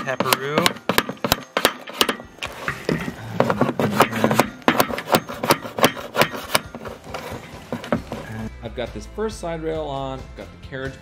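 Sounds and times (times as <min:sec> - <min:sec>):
metal bolt tapping on metal: 0:00.0 - 0:08.3.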